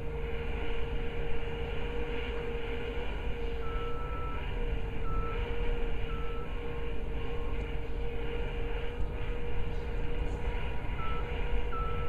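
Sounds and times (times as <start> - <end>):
diesel engine rumbling: 0.0 - 12.0
higher machine tone: 0.0 - 12.0.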